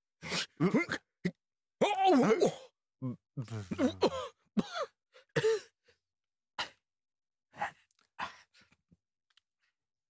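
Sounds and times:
man grunting: 1.8 - 4.3.

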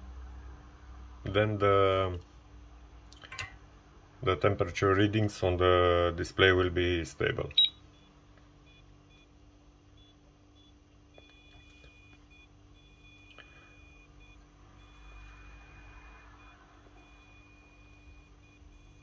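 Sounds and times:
steady low hum: 0.0 - 19.0
soldering iron high-pitched whine: 7.6 - 19.0.

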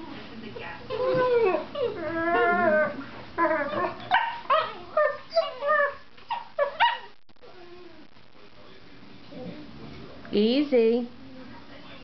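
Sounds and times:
dogs yipping and whining: 0.9 - 8.0.

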